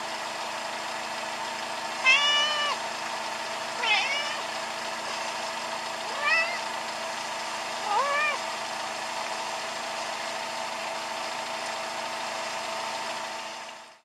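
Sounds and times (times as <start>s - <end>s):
cat meowing: 2.0s - 2.8s, 3.8s - 4.5s, 6.1s - 6.7s, 7.8s - 8.4s.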